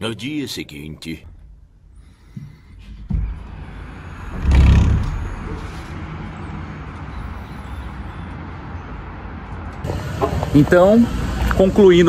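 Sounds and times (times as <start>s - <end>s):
city traffic hum: 0.0s - 12.0s.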